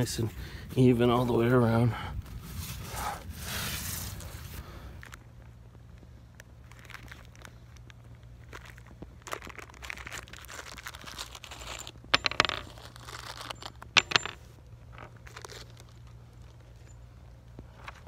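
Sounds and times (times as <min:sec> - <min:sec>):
plastic bag crinkling: 0:06.6 - 0:12.0.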